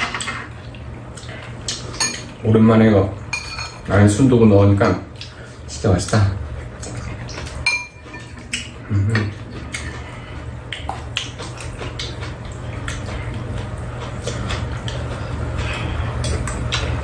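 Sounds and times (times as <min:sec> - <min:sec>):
steady low hum: 0:00.0 - 0:17.0
spoons clinking against bowls: 0:03.3 - 0:03.8, 0:07.6 - 0:08.7.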